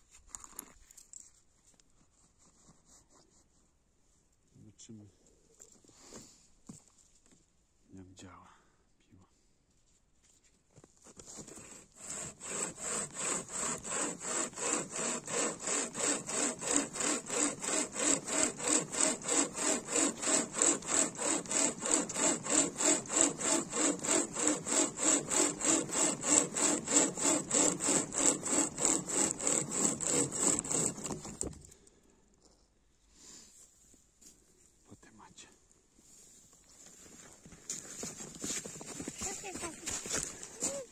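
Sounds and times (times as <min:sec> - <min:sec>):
hand chain saw sawing log: 0:11.2 - 0:31.8, 0:37.8 - 0:40.9.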